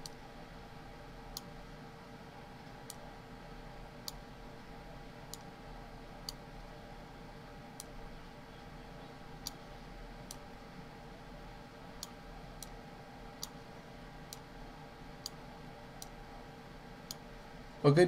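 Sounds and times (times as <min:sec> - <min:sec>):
faint steady hum: 0:00.0 - 0:18.0
computer mouse clicking: 0:01.3 - 0:01.5, 0:04.0 - 0:04.2, 0:05.3 - 0:05.5, 0:06.2 - 0:06.4, 0:07.8 - 0:08.0, 0:10.3 - 0:10.5, 0:13.4 - 0:13.6, 0:14.3 - 0:14.5, 0:16.0 - 0:16.2, 0:17.0 - 0:17.3.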